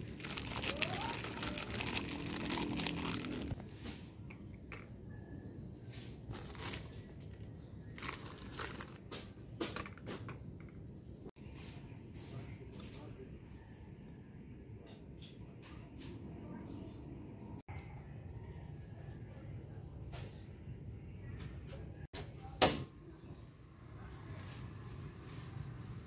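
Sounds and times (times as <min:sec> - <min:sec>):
plastic bag crinkling: 0:00.0 - 0:03.6, 0:06.2 - 0:09.1.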